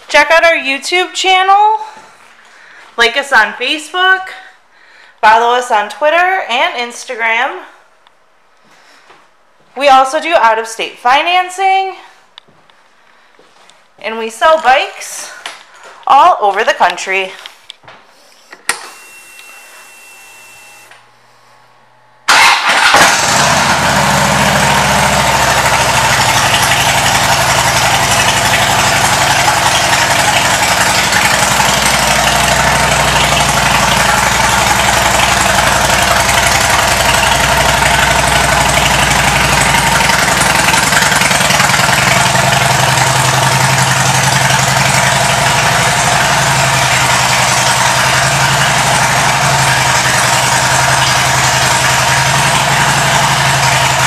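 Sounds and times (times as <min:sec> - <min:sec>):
motorcycle engine starting: 0:20.8 - 0:54.0
motorcycle engine idling: 0:22.3 - 0:54.0.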